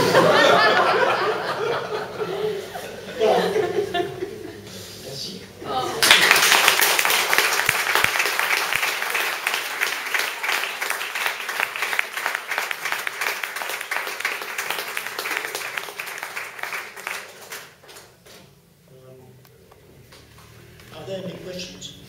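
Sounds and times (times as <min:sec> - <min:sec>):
audience applauding: 0:06.0 - 0:18.2.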